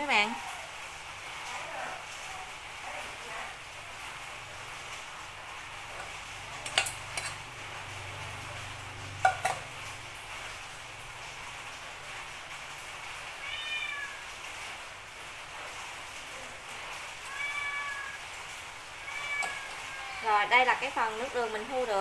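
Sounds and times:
metal clinking against sieve: 6.6 - 7.4.

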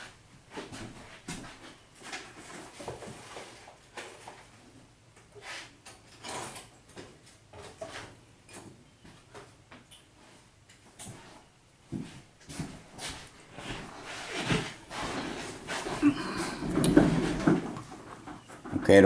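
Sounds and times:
objects rummaged through: 12.5 - 18.9.

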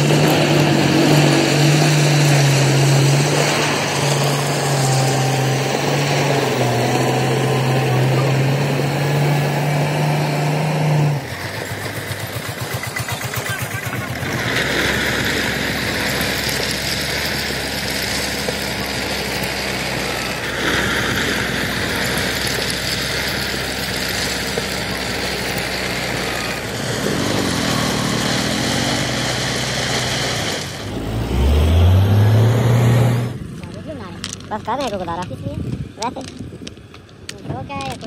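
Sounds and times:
engine revving sharply: 0.0 - 34.4
gravel crunching and rattling: 0.0 - 38.0
tractor diesel engine running: 0.0 - 38.0.

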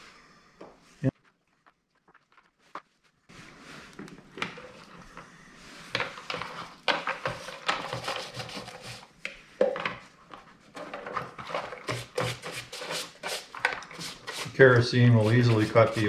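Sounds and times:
brush scrubbing metal parts: 6.3 - 9.2, 11.2 - 16.0.

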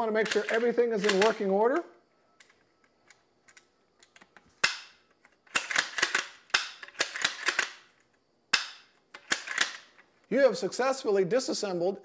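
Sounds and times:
rifle bolt clicks and clacks: 0.2 - 1.5, 2.4 - 7.8, 8.6 - 10.0.

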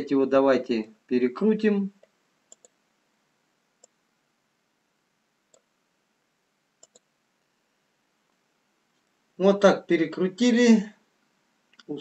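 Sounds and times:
computer mouse clicks: 2.0 - 2.8, 3.8 - 4.0, 5.5 - 5.7, 6.8 - 7.1.

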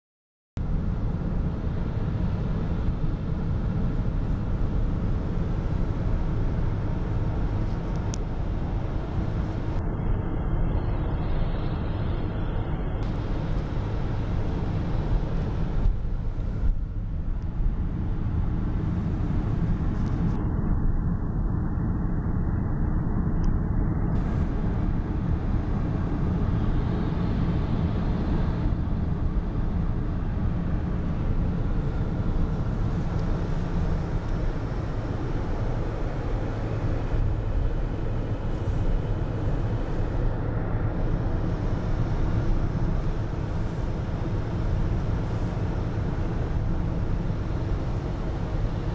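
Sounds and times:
car engine rumble: 0.6 - 48.9
tyres on wet slushy road: 24.2 - 48.9.

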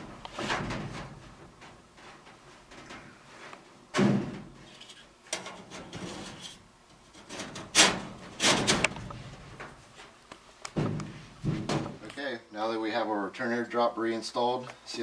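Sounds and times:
sheet metal scraping: 0.0 - 9.7
heavy thump: 3.9 - 4.6, 10.8 - 12.1.

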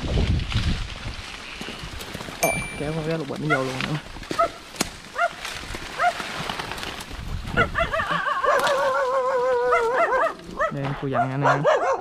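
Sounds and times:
animal yelping and whining: 7.6 - 10.4.

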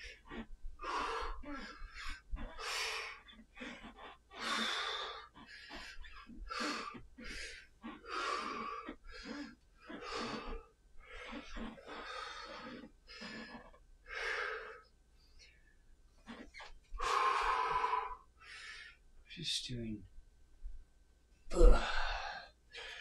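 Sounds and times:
man breathing hard: 0.0 - 13.4, 17.0 - 19.0, 21.6 - 23.0.

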